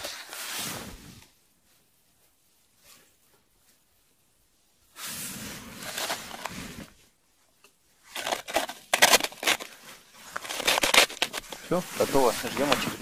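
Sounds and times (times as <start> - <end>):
crunching and rustling: 5.2 - 7.0, 8.0 - 13.0
plastic clicks and scrapes: 5.8 - 6.6, 7.6 - 13.0.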